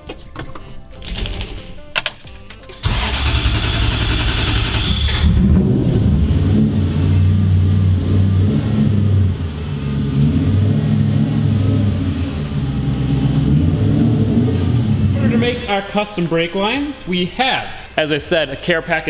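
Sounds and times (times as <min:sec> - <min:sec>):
pickup truck engine running: 0:02.8 - 0:15.6.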